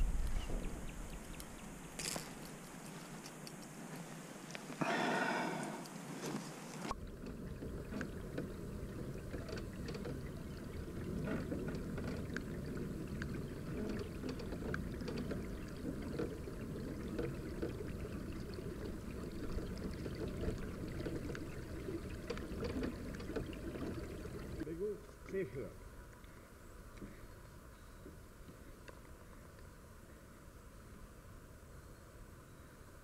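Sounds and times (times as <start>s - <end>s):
steady low rumble: 0.0s - 2.6s
small ticks: 1.1s - 4.8s
water lapping against kayak hull: 4.8s - 24.7s.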